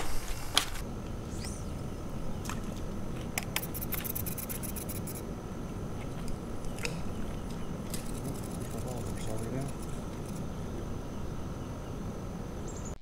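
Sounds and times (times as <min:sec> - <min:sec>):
fishing reel clicking: 0:03.5 - 0:05.2, 0:08.0 - 0:10.4.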